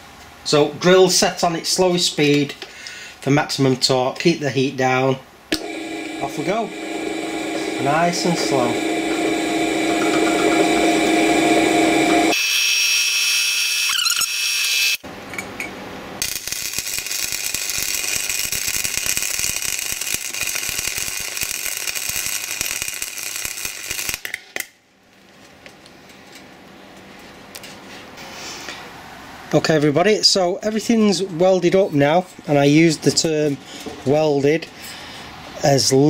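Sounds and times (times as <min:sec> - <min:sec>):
welding crackling and spitting: 0:05.6 - 0:12.4, 0:16.2 - 0:24.7
drill boring through steel: 0:05.6 - 0:15.0.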